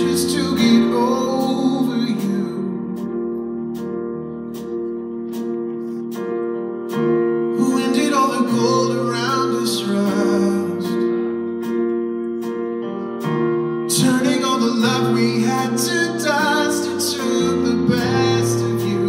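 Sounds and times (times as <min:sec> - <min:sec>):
man singing: 0:00.0 - 0:03.2, 0:07.5 - 0:11.3, 0:13.9 - 0:19.0
live band playing slow song: 0:00.0 - 0:19.0.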